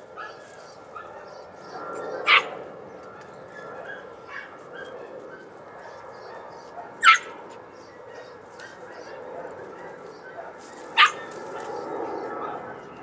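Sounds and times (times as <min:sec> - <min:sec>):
puppy yelping: 0:02.2 - 0:02.6, 0:07.0 - 0:07.4, 0:10.3 - 0:11.4.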